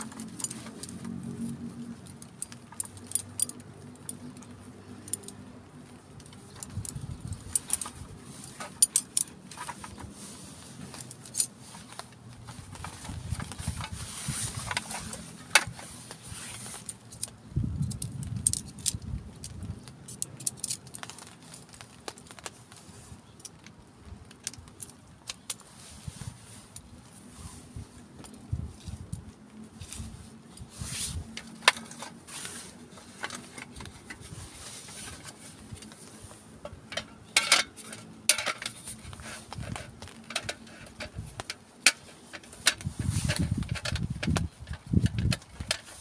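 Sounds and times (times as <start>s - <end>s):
metal poles clicking and clinking: 0.0s - 22.5s, 29.6s - 46.0s
carry bag rustling: 0.0s - 46.0s.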